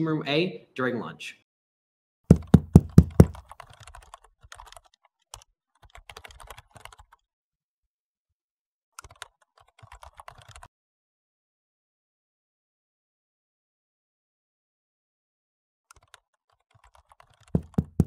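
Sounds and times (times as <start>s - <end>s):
knocks on a door: 2.3s - 3.4s, 17.6s - 18.0s.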